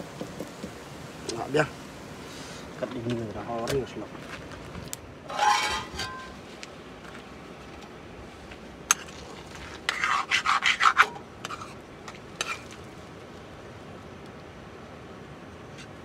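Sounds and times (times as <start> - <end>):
metal spoon scraping metal pan: 5.3 - 6.4, 9.9 - 11.8
metallic clatter: 5.3 - 6.4.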